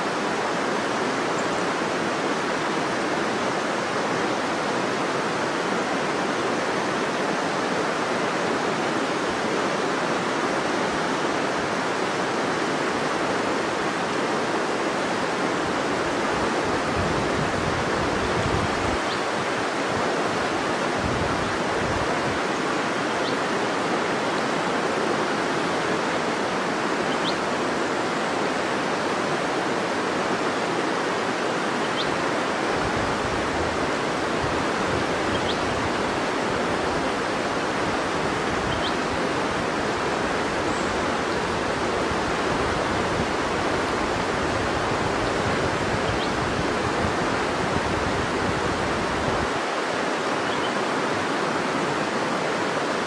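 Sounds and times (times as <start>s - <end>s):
river water rushing: 0.0s - 53.0s.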